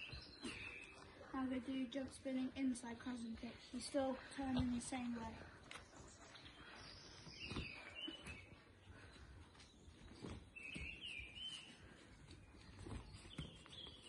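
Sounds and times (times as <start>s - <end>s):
small bird singing: 0.0s - 3.7s, 4.5s - 14.0s
faint outdoor background noise: 0.0s - 14.0s.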